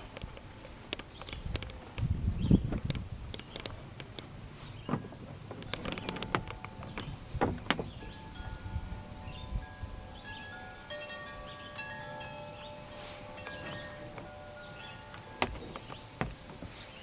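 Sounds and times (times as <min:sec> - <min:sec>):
wind chimes ringing: 0:07.9 - 0:17.0.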